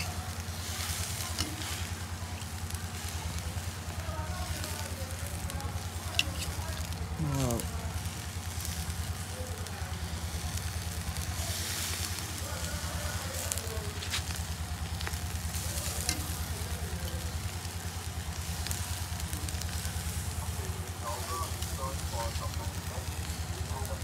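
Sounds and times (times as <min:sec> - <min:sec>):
meat sizzling over charcoal: 0:00.0 - 0:24.0
metal fork clicking on grill: 0:01.0 - 0:02.6, 0:06.1 - 0:06.6.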